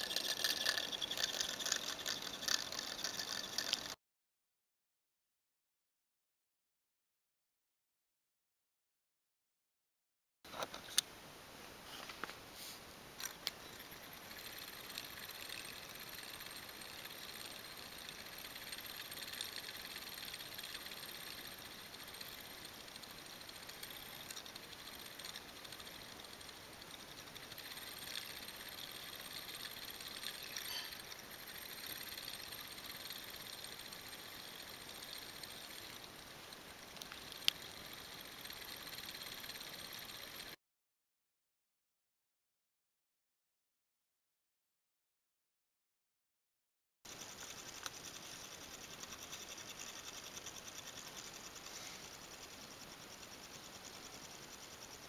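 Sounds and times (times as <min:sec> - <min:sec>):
small motor whirring rattle: 0:00.0 - 0:04.0, 0:13.2 - 0:40.6, 0:47.1 - 0:55.0.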